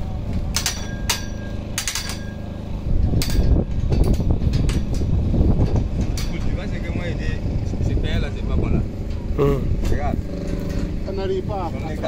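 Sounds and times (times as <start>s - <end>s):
low steady rumble: 0.0s - 12.0s
metallic knocks and clanks: 0.4s - 6.9s.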